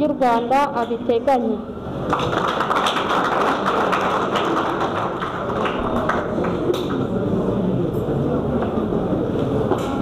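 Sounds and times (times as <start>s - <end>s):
audience clapping: 2.0s - 7.1s.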